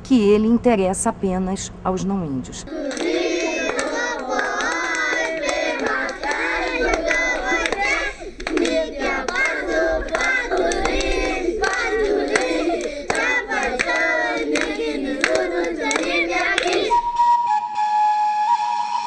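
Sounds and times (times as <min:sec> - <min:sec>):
children singing and shouting: 0:02.7 - 0:17.2
hands clapping: 0:02.8 - 0:17.1.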